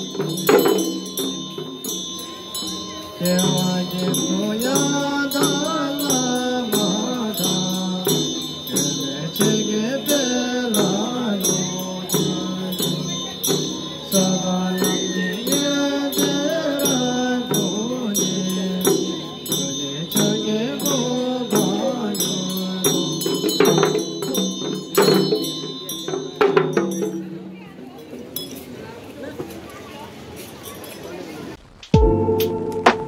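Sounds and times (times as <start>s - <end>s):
hand bells ringing: 0.0s - 28.8s
hand drums rattling: 0.0s - 28.8s
voices singing a chant: 3.2s - 23.8s.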